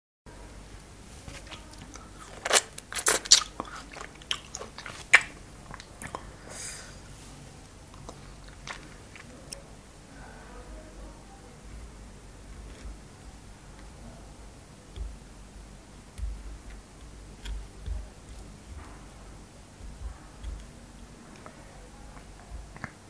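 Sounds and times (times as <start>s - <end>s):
chewing: 1.2s - 6.8s, 7.6s - 9.7s, 16.1s - 23.0s
crunching frozen cherries: 1.3s - 6.2s.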